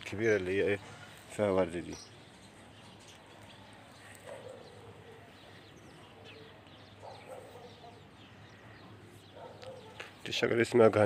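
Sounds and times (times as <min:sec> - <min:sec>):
distant bird calls: 0:00.0 - 0:11.0
faint bird chirps: 0:01.8 - 0:10.4.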